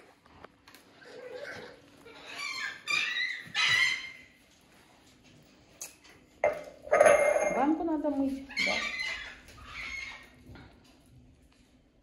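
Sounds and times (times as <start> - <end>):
animal high-pitched cries: 1.0 - 4.4, 8.5 - 10.4.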